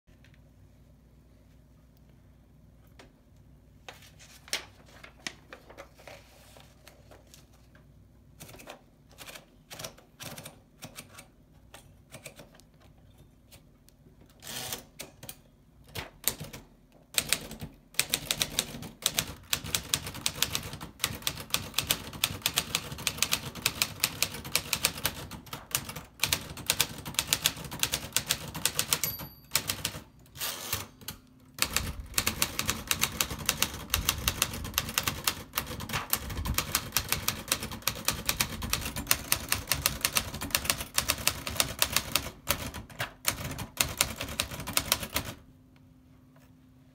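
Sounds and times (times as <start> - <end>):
typewriter keys clacking: 17.2 - 45.4
typewriter bell ding: 28.8 - 30.0.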